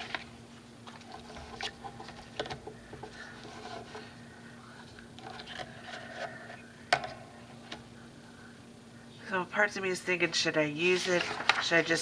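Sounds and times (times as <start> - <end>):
paper sheets rustling and sliding: 10.8 - 12.0.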